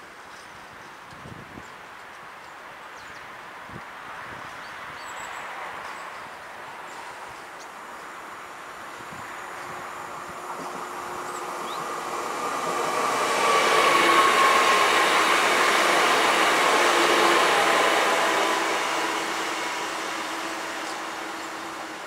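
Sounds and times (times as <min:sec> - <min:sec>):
locomotive blower noise: 0:09.0 - 0:22.0.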